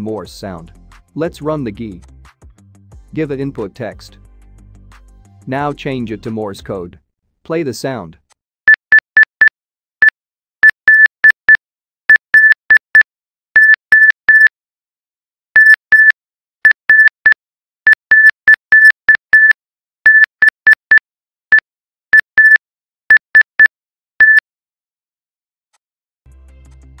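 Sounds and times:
morse code beeps: 8.7 - 14.5, 15.6 - 21.6, 22.2 - 24.4.

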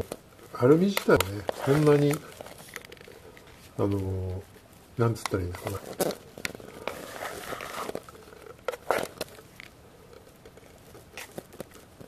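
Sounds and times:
rice paddle scraping pot: 5.6 - 9.2.

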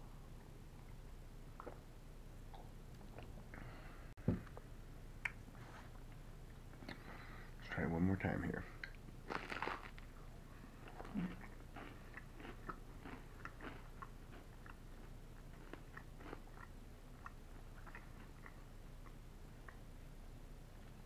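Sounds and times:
person chewing crunchy food: 8.9 - 19.8.

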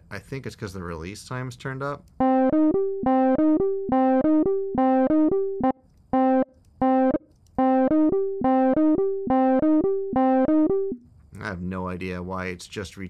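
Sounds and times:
saw-wave synth notes: 2.2 - 11.0.

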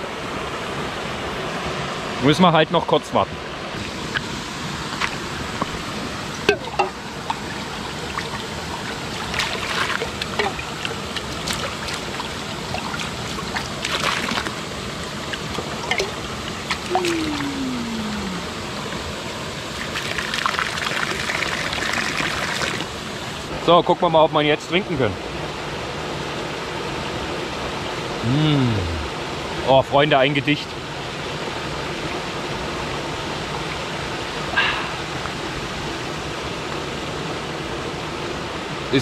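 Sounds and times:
waterfall and stream splashing: 0.0 - 39.0.

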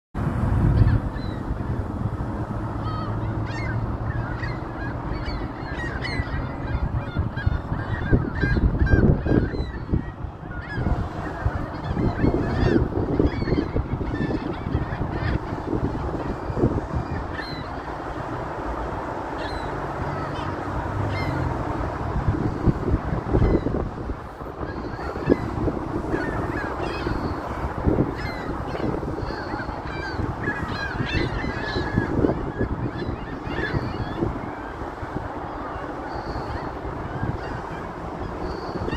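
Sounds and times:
gulls calling: 0.6 - 38.9.

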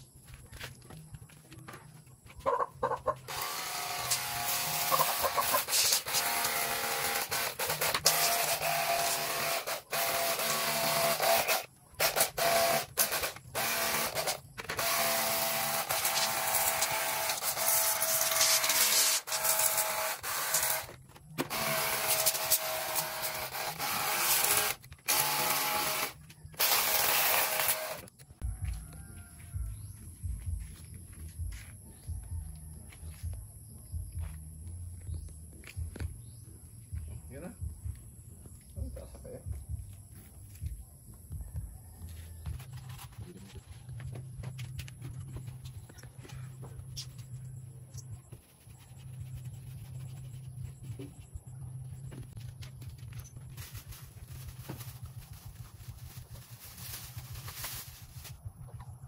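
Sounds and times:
pressure washer spraying plastic: 3.3 - 28.1.

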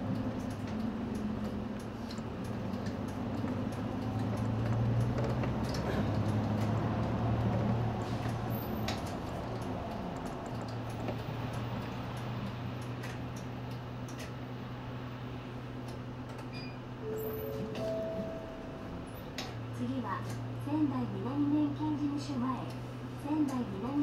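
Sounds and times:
bus engine running low: 0.0 - 24.0
two-note electronic chime: 17.0 - 19.1.

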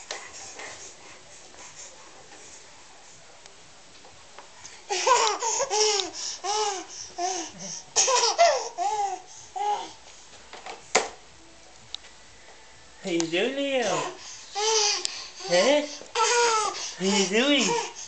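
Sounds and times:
baby giggling: 4.9 - 9.2.

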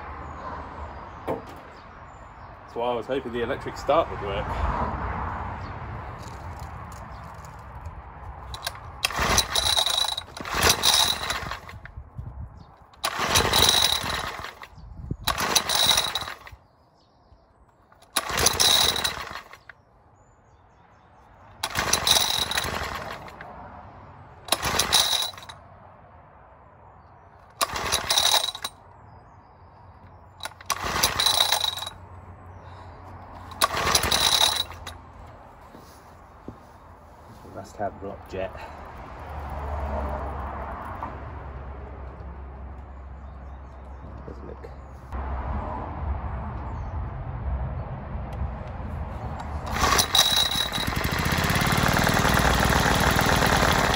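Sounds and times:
small engine turning over: 8.4 - 11.9, 12.9 - 16.6, 17.9 - 19.8, 21.6 - 23.5, 24.5 - 25.6, 27.5 - 28.8, 30.4 - 32.0, 33.4 - 35.0, 49.6 - 53.9.

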